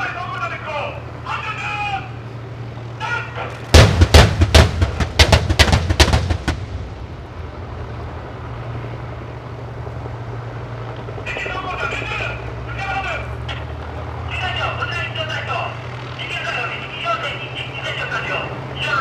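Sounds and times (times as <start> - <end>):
low engine hum: 0.0 - 19.0
gunfire volley: 3.7 - 7.0.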